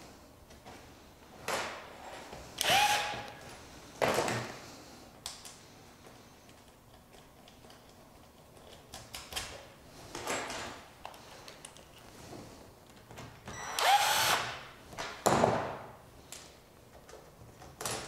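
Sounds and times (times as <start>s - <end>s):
cordless drill whining: 2.6s - 3.4s, 13.5s - 14.6s.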